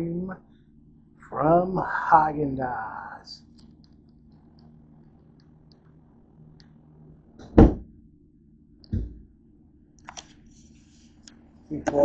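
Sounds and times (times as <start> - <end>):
faint clicks of objects handled: 10.0 - 11.4.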